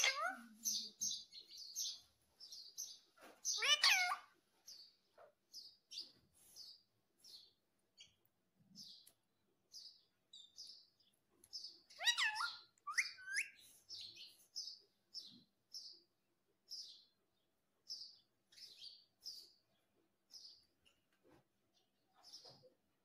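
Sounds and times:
parakeet chirping: 0.0s - 2.0s, 2.8s - 4.3s, 11.8s - 14.3s.

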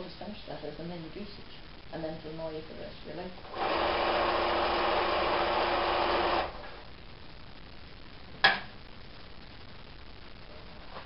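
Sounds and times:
sewing machine running: 3.5s - 6.7s.

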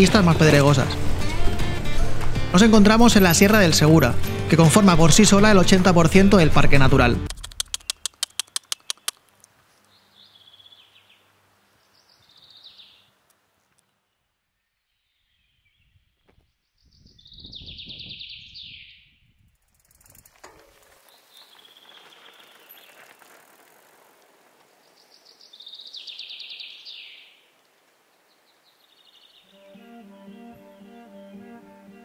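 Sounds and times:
wild birds chirping: 7.3s - 19.2s, 20.7s - 32.0s.

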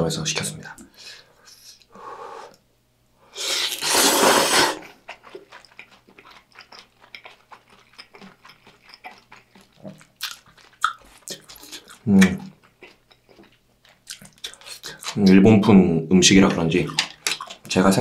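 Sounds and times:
loud slurp of noodles: 3.4s - 5.0s
wet chewing with small clicks: 4.8s - 18.0s.

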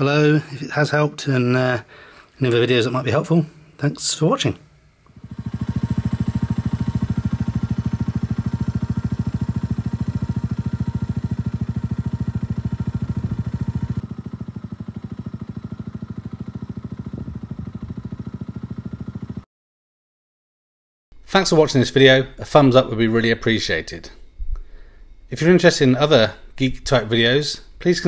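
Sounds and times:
motorcycle engine idling: 5.1s - 19.4s.

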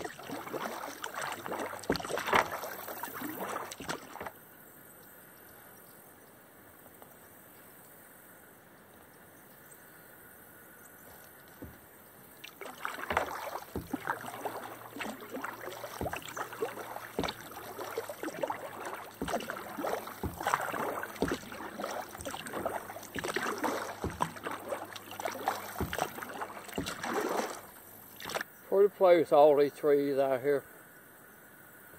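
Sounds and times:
paddle knocks: 0.0s - 4.3s, 11.6s - 28.4s
paddle splashing through water: 0.0s - 4.4s, 11.1s - 28.5s.

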